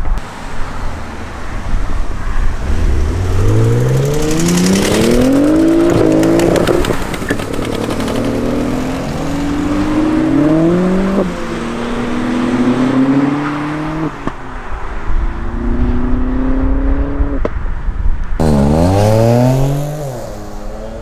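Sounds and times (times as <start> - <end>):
car engine accelerating hard: 2.4 - 14.1, 18.4 - 21.0
second engine revving: 2.6 - 11.2, 18.4 - 21.0.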